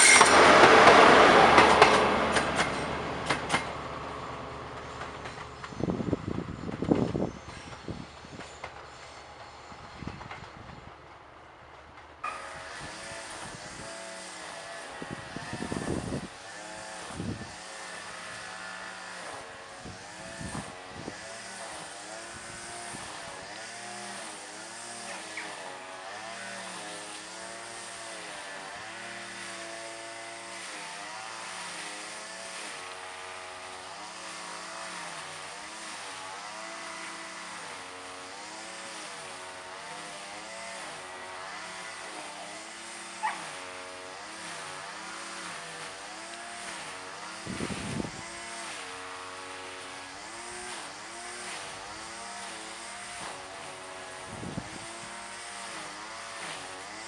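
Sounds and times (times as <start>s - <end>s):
train diesel engine: 0.0s - 12.3s.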